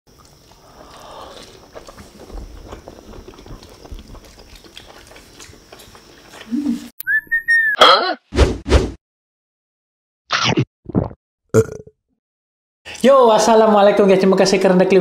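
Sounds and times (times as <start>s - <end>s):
chewing: 0.1s - 6.8s
short whistle-like tone: 7.0s - 7.8s.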